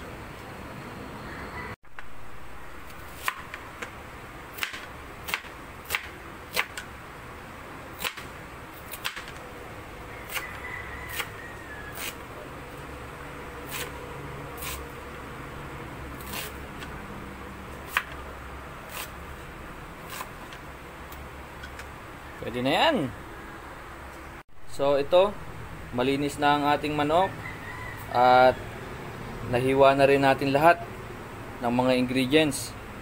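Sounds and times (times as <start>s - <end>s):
knife chopping on cutting board: 11.1s - 12.2s, 17.9s - 18.2s, 20.1s - 20.3s.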